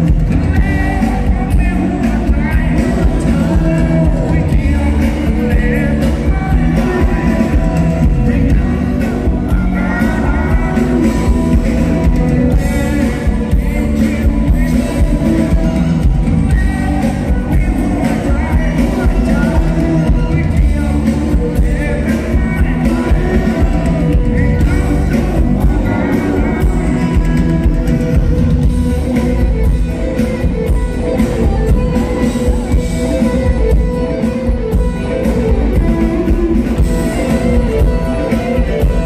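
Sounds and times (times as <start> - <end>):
bass guitar: 0.0 - 39.0
drums: 0.0 - 39.0
electric guitars: 0.0 - 39.0
man singing: 0.0 - 39.0.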